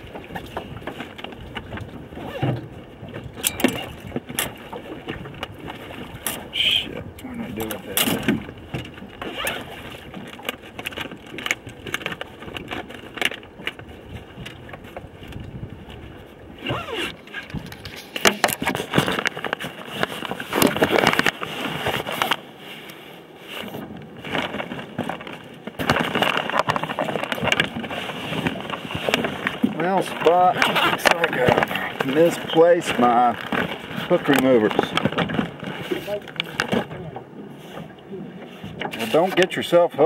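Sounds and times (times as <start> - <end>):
zipper: 2.2 - 2.5, 9.2 - 9.8, 16.6 - 17.4.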